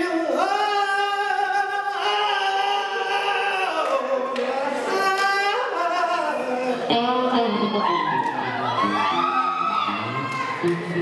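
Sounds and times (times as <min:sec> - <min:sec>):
young man singing: 0:00.0 - 0:08.0.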